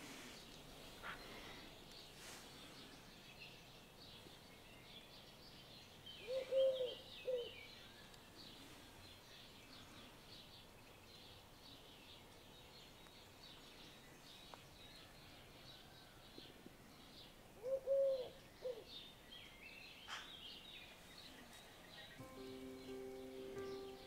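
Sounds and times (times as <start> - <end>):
faint small birds chirping: 0.0 - 24.0
dove cooing: 6.2 - 7.5, 17.6 - 18.8.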